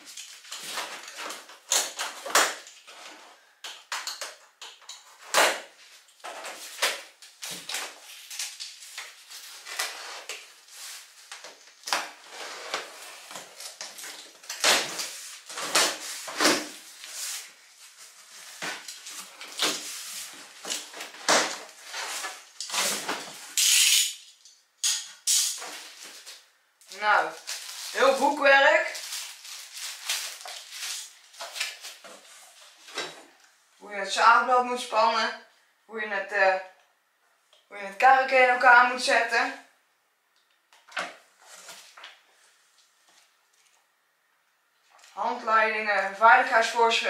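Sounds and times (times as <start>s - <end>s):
knife slicing packing tape: 20.7s - 24.2s, 24.8s - 25.8s.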